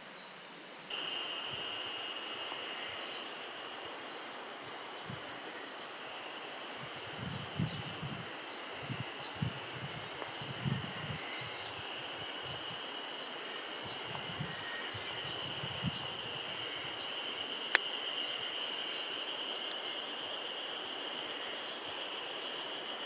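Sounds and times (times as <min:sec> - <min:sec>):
background hiss: 0:00.0 - 0:23.0
insects droning: 0:00.2 - 0:23.0.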